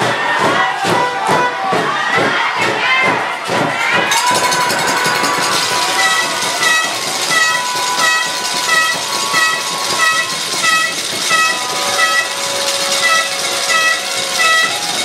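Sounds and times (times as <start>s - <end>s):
horn toots: 4.1s - 15.0s.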